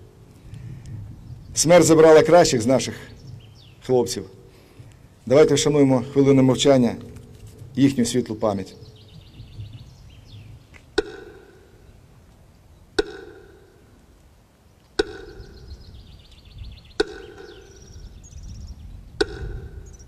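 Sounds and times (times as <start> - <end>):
small birds chirping: 0.0 - 20.0
metronome ticks over loudspeaker: 10.9 - 11.9, 13.0 - 14.3, 14.9 - 18.2, 19.2 - 20.0.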